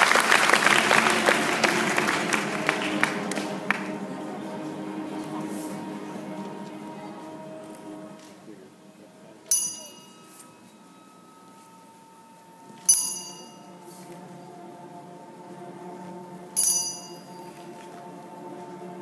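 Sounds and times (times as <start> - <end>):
faint background music: 1.2 - 19.0
small bell ringing: 9.5 - 11.9, 12.8 - 13.7, 16.6 - 17.4.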